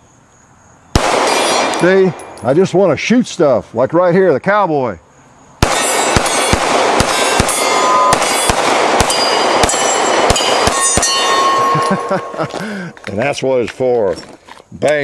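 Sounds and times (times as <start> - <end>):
pistol shots: 1.0 - 2.5, 5.6 - 12.6
steel targets ringing: 1.1 - 2.8, 5.6 - 12.6.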